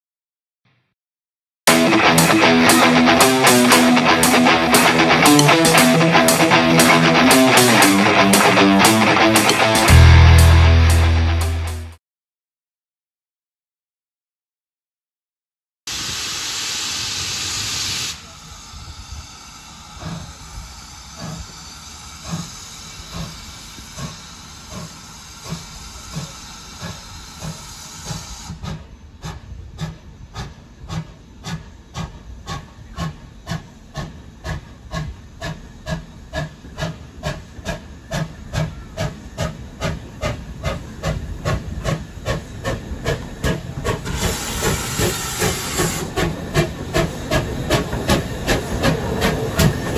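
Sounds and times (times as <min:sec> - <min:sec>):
loud steam hiss: 0:01.7 - 0:10.5, 0:15.9 - 0:49.9
steam locomotive exhaust chuffs: 0:01.7 - 0:11.8, 0:15.9 - 0:49.9
soft steam hiss: 0:15.9 - 0:49.9.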